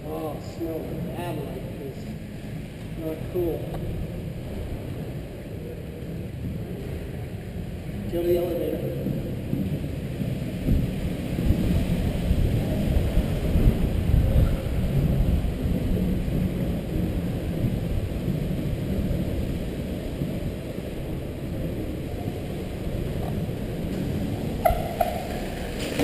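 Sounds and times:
skate wheels rolling on concrete: 0.0 - 26.0.

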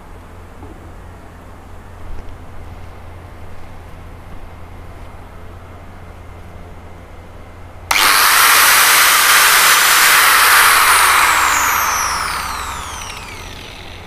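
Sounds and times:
angle grinder high-pitched whine: 7.9 - 14.0.

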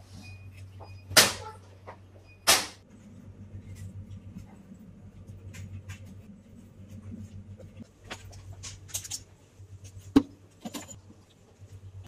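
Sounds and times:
low steady hum: 0.0 - 12.0
metal rack clinks and scrapes: 10.6 - 11.0.

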